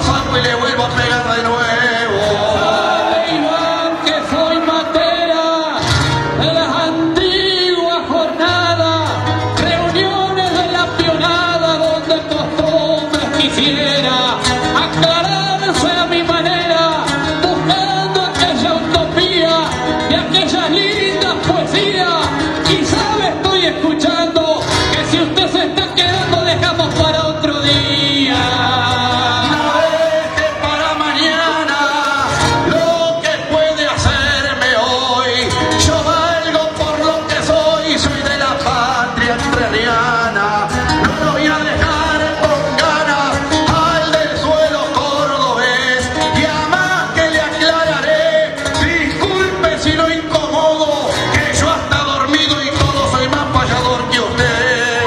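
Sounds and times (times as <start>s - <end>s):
acoustic guitar strummed and plucked: 0.0s - 55.0s
man singing: 0.0s - 55.0s.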